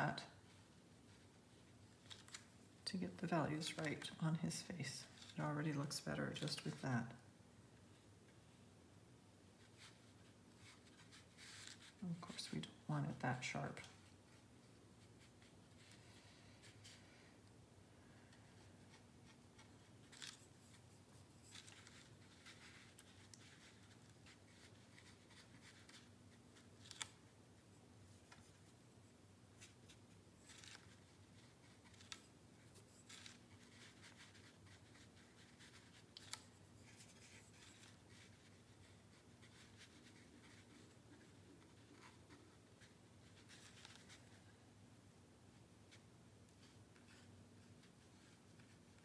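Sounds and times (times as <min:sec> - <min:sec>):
brush scratching on paper: 0:29.6 - 0:44.4.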